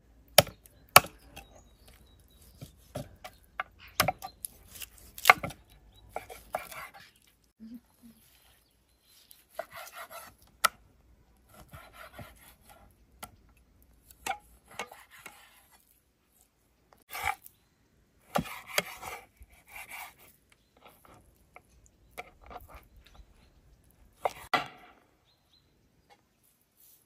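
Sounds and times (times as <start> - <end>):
knife cutting raw meat: 4.0 - 7.3.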